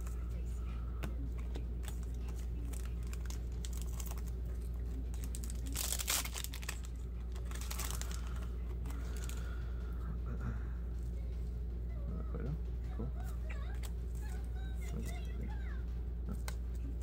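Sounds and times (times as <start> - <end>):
steady low hum: 0.0 - 17.0
cards rustling and clicking: 1.0 - 9.5
foil pack tearing and crinkling: 1.8 - 9.5.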